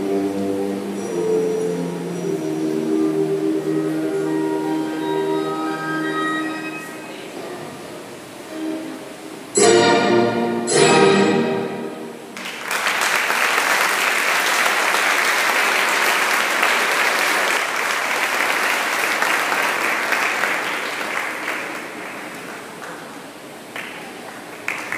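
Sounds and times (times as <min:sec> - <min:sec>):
audience applause: 0:12.4 - 0:24.9.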